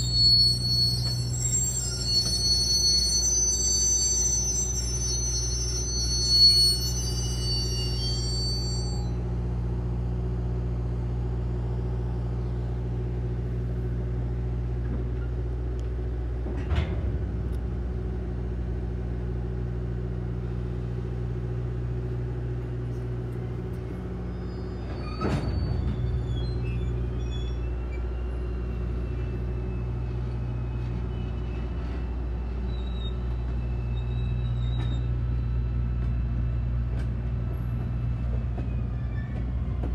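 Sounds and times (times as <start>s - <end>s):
train cars rolling: 0.0s - 9.0s, 22.7s - 39.9s
wheel squeal: 0.0s - 9.2s, 24.2s - 36.2s, 38.5s - 39.6s
diesel locomotive engine hum: 0.0s - 39.9s.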